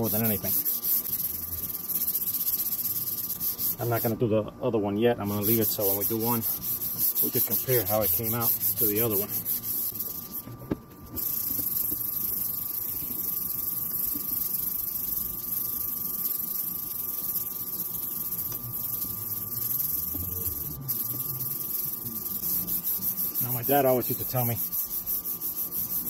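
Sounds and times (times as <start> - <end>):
sandpaper rubbing on plastic: 0.0 - 4.1, 5.3 - 10.6, 11.2 - 26.0
steady high hum: 0.0 - 26.0.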